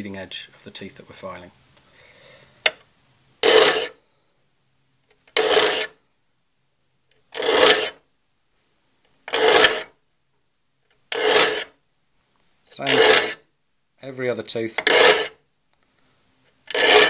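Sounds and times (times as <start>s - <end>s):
file rasping across saw teeth: 3.4s - 4.0s, 5.3s - 6.0s, 7.3s - 8.0s, 9.3s - 9.9s, 11.1s - 11.8s, 12.8s - 13.4s, 14.8s - 15.4s, 16.7s - 17.0s.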